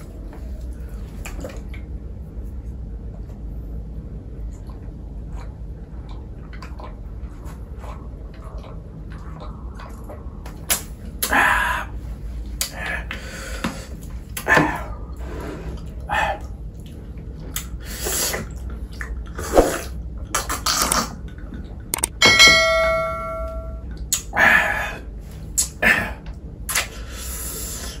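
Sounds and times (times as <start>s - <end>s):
metallic ding ringing: 22.1s - 23.9s.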